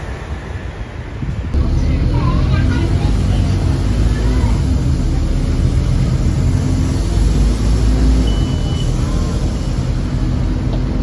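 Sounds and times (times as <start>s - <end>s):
bus diesel engine droning: 0.0s - 11.0s
short high beep: 8.2s - 9.0s.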